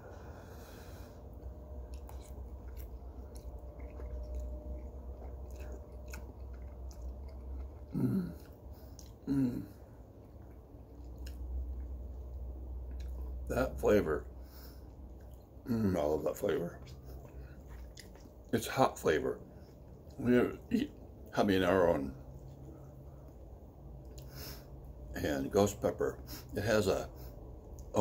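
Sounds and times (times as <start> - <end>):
man chewing noodles: 0.1 - 13.5, 14.4 - 18.8, 19.4 - 21.3.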